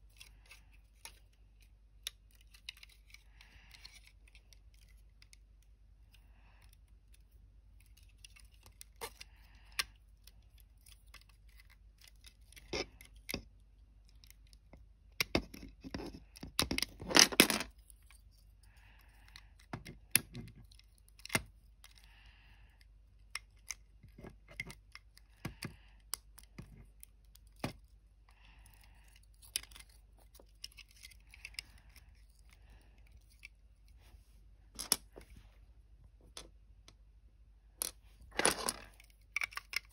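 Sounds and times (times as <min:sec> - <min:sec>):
plastic bricks clattering: 0:15.2 - 0:17.7, 0:37.8 - 0:39.9
plastic bricks clicking: 0:37.8 - 0:39.9.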